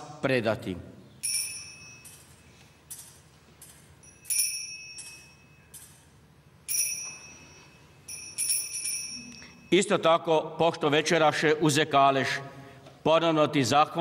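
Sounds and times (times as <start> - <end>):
altar bells jingling: 1.2 - 10.0.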